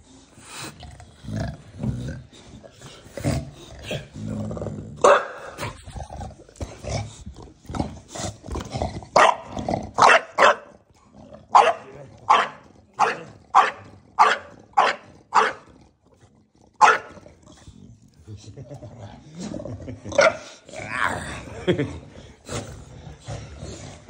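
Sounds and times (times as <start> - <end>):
dog growling low: 0.0 - 10.0, 10.9 - 24.0
dog barking sharply: 5.0 - 5.5, 10.0 - 10.7, 11.6 - 15.6, 16.8 - 17.1.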